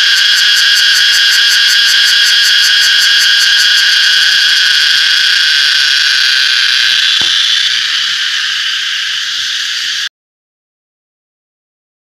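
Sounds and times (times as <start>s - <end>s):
cicada buzzing: 0.0s - 10.1s.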